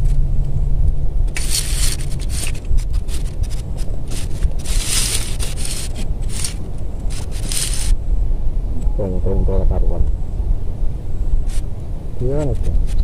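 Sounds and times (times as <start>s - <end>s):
wind buffeting microphone: 0.0s - 13.0s
rustling and scraping: 1.2s - 8.0s, 11.4s - 11.7s.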